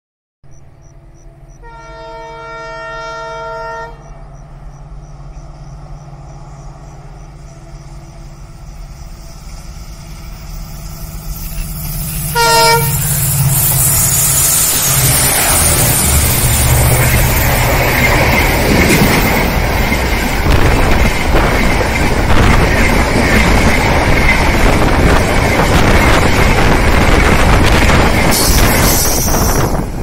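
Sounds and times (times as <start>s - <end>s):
diesel locomotive engine rumbling: 0.5s - 30.0s
train rushing: 0.5s - 30.0s
locomotive horn: 1.5s - 4.2s, 12.2s - 13.3s.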